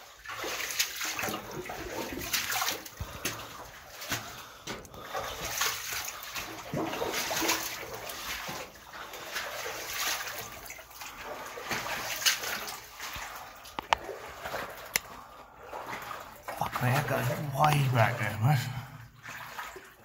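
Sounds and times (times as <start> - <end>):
footsteps in a rock tunnel: 0.3 - 16.2.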